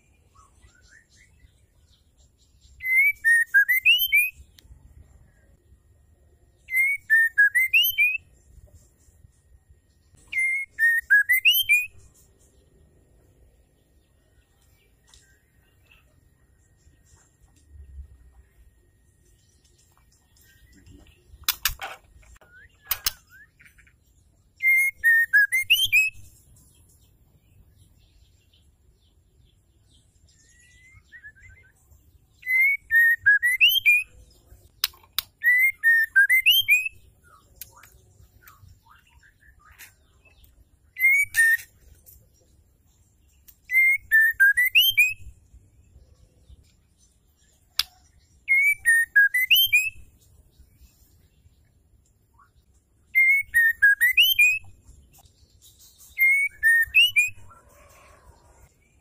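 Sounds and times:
bird whistled call: 2.8 - 4.4, 6.7 - 8.2, 10.3 - 12.0, 24.6 - 26.2, 32.4 - 34.1, 35.4 - 37.0, 41.0 - 41.7, 43.7 - 45.3, 48.5 - 50.0, 53.2 - 54.7, 56.1 - 57.5
sharp bird clicks: 20.4 - 24.0, 34.7 - 35.5, 47.7 - 48.1.

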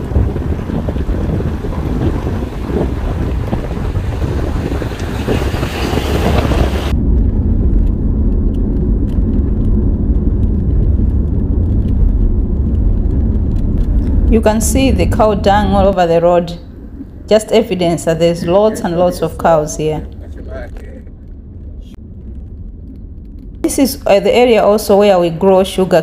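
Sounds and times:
car road and engine rumble: 0.0 - 25.6
wind rushing over microphone: 0.0 - 26.0.

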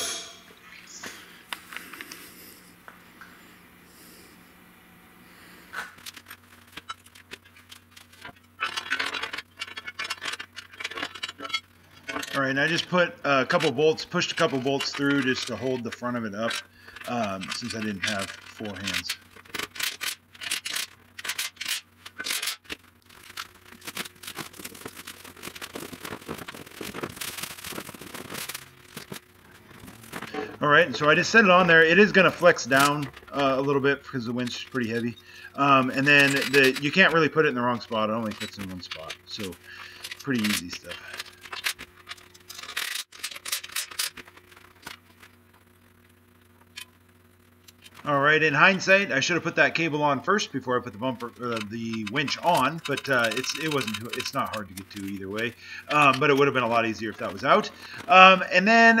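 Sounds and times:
faint steady hum: 0.0 - 59.0
hands handling winch cable: 5.7 - 45.4, 51.2 - 59.0
plastic wrap and cardboard rustling: 12.2 - 45.7, 51.0 - 59.0.

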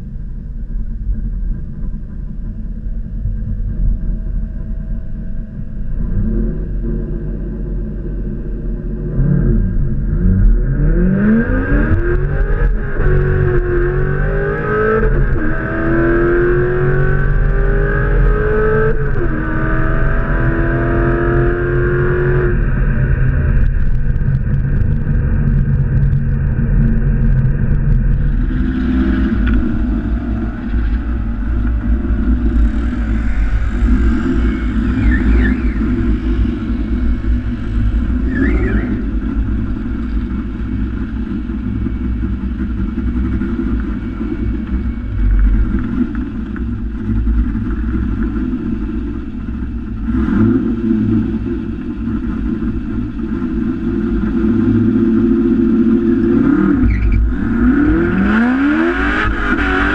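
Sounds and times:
car engine revving: 3.5 - 59.9
gear upshifts: 27.4 - 52.6.

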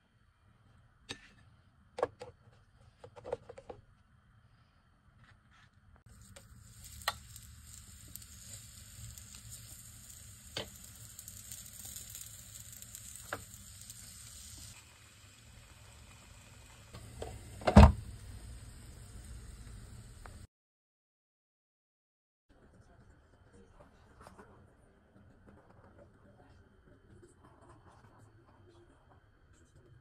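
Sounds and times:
batter sizzling in waffle iron: 6.1 - 20.5.

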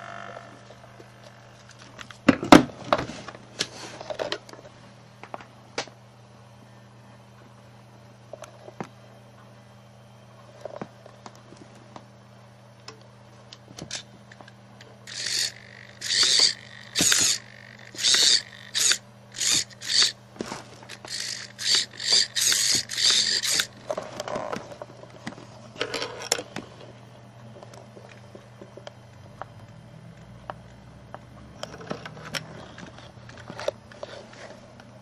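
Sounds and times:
steady low hum: 0.0 - 35.0
rc car motor whirring: 15.0 - 24.5.

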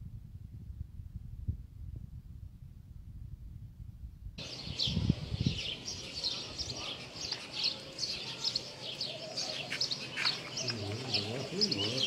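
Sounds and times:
small birds chirping: 4.4 - 12.0.

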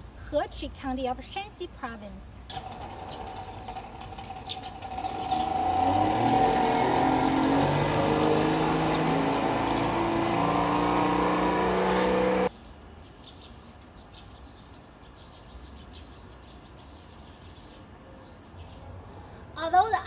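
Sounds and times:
birds chirping: 2.5 - 12.5
outboard motor running: 2.5 - 12.5.

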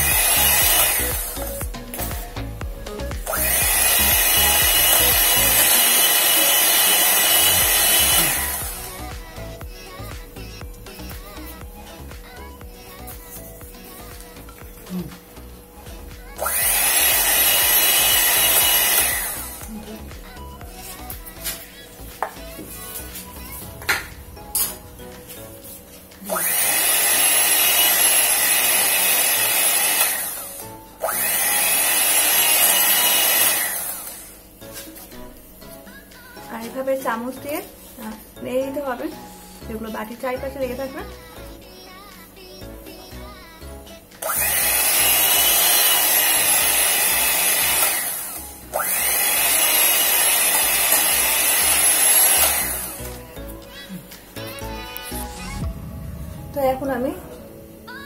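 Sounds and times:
hand mixer whining: 0.0 - 9.8, 10.9 - 34.4, 44.2 - 53.3.

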